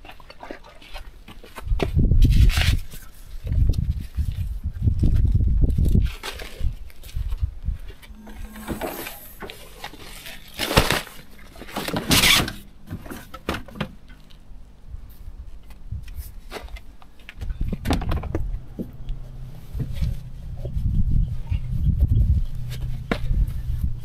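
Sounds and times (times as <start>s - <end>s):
low rumble: 8.0s - 10.4s.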